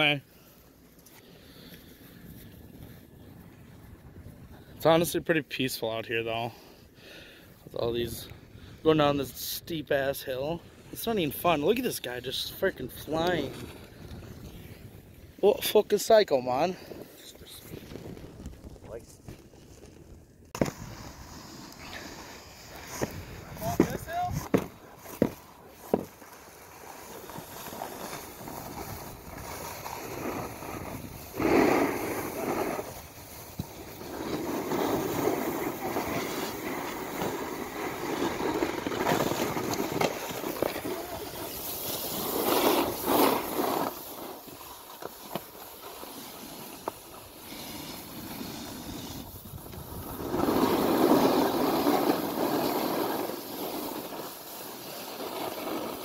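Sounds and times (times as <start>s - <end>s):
snowboard scraping over snow: 8.9s - 56.0s.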